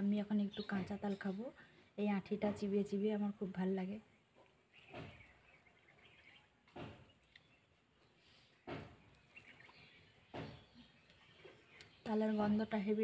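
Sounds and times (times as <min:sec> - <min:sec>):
faint bird chirps: 0:04.6 - 0:12.6.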